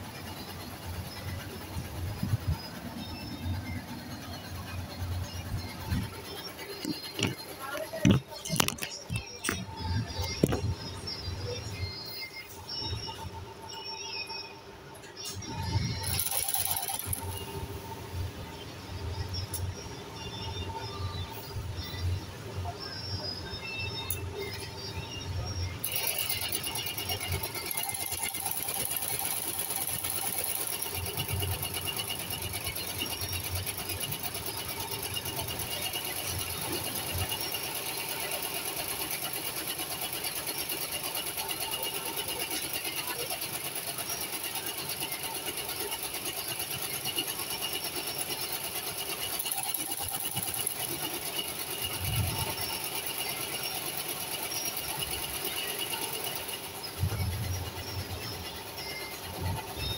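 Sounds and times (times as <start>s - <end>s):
sewing machine stitching: 15.5s - 17.8s, 25.8s - 59.9s.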